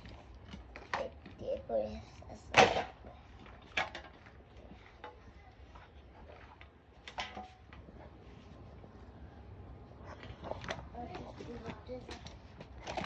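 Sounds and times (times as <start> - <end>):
toys knocking and clattering: 2.5 - 7.9, 10.2 - 13.0.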